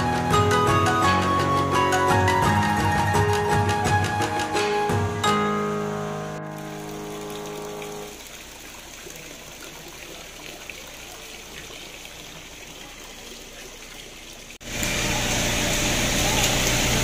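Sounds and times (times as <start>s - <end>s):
guitar music: 0.0s - 8.1s
falling water: 0.0s - 17.0s.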